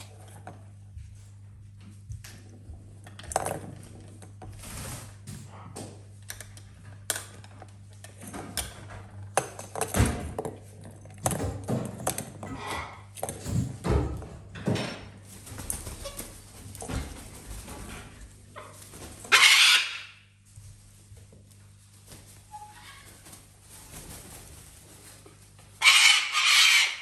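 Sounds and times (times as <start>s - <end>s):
steady low hum: 0.0s - 19.3s.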